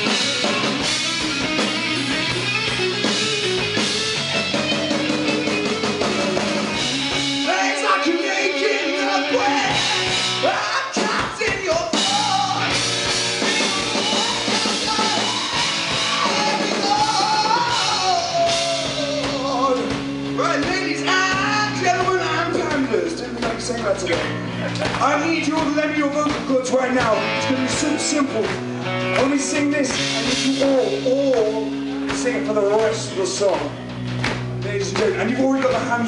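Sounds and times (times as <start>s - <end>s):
bass guitar: 0.0s - 36.0s
drum kit: 0.0s - 36.0s
electric guitars: 0.0s - 36.0s
man singing: 6.8s - 33.8s.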